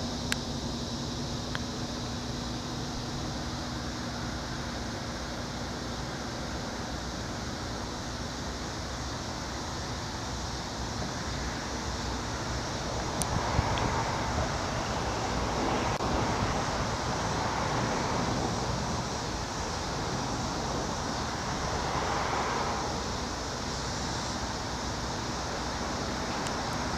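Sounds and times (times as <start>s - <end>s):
propeller plane engine droning: 0.0s - 26.9s
road traffic: 0.0s - 26.9s
wind: 0.0s - 26.9s.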